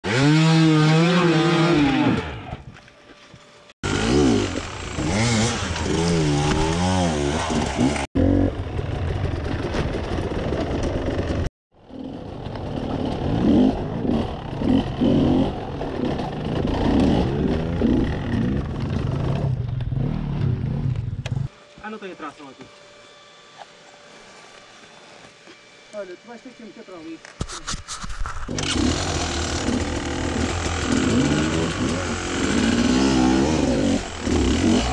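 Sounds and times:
dirt bike engines revving: 0.0s - 2.6s, 3.8s - 21.5s, 28.5s - 34.9s.

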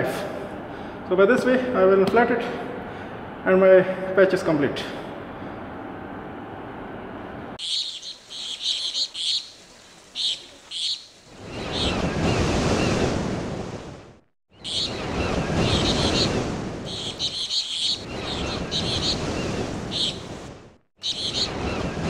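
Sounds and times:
birds chirping: 7.6s - 13.1s, 14.5s - 22.0s
waves washing in: 7.7s - 22.0s.

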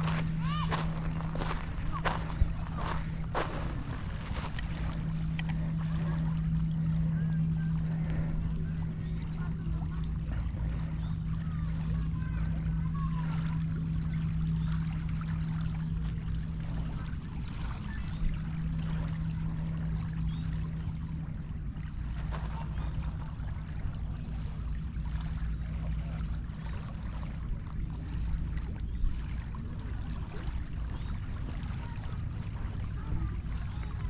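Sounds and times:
waves lapping on pebbles: 0.0s - 6.2s
low rumble: 0.0s - 34.0s
steady low hum: 0.0s - 34.0s.

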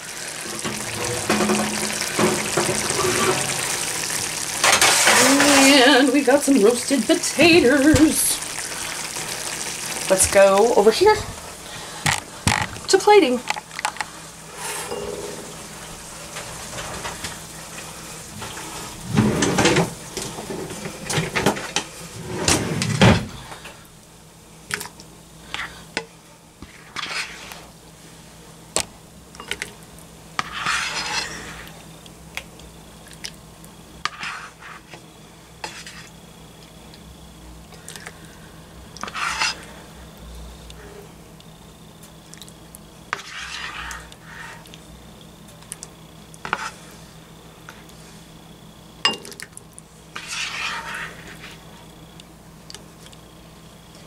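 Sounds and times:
utensil scraping a skillet: 0.3s - 6.8s, 14.5s - 17.3s, 26.6s - 27.7s, 30.4s - 31.8s, 34.0s - 35.0s, 35.6s - 36.2s, 39.0s - 39.8s, 43.1s - 44.8s, 46.4s - 47.1s, 50.1s - 51.7s.

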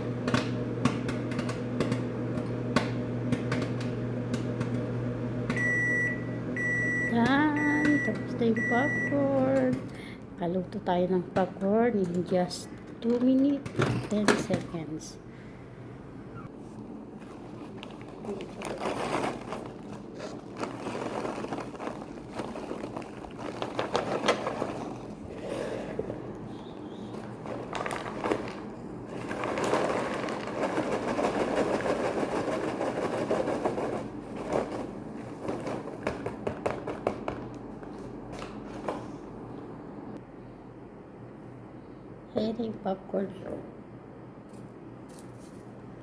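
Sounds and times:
microwave oven beeping: 0.0s - 9.7s
microwave oven hum: 0.0s - 46.0s
paper bag crinkling: 17.2s - 25.3s, 27.2s - 35.9s
popcorn popping: 17.3s - 25.2s, 27.3s - 37.7s.

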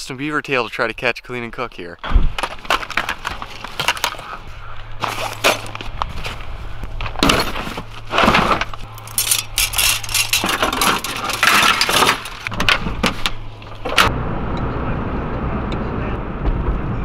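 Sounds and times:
steel traps clinking: 7.1s - 14.0s.

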